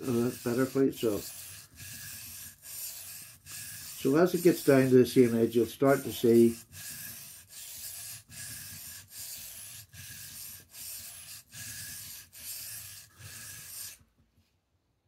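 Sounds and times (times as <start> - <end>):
knife scraping on whetstone: 0.0 - 14.0.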